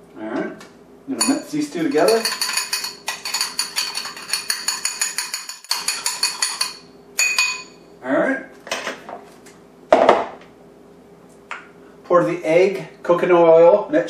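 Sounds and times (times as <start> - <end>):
utensil clinking against bowl: 1.2 - 7.8
knock on counter: 9.9 - 10.4.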